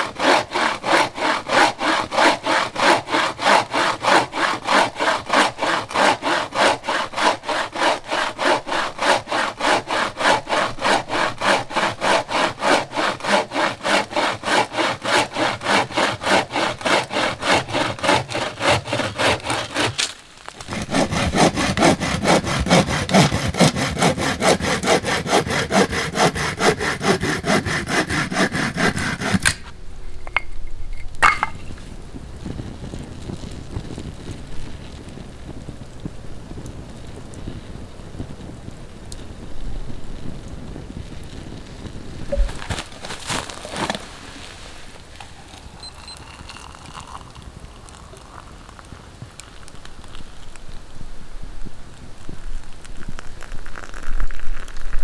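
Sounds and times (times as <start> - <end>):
hand saw cutting wood: 0.0 - 29.7, 42.3 - 45.8
uneven scraping of wood: 2.9 - 32.0, 42.2 - 47.2.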